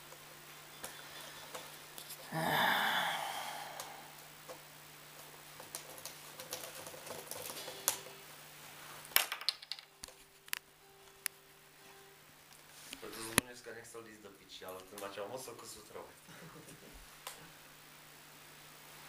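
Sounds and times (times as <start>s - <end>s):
steady low hum: 0.0s - 6.5s.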